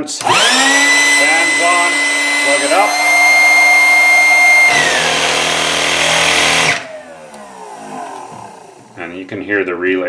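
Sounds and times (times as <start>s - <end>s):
motors spinning down: 0.0s - 9.4s
piston pumps humming: 0.0s - 9.4s
air pump fan whining: 0.0s - 9.7s
relays clicking: 6.1s - 9.1s.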